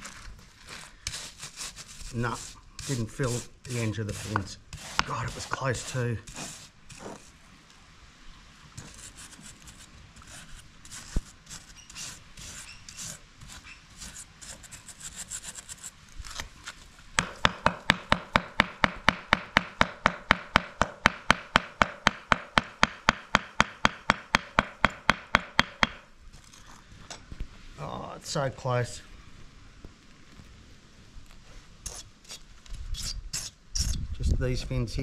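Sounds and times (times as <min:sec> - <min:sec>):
stiff brush scrubbing metal: 0:00.7 - 0:07.4.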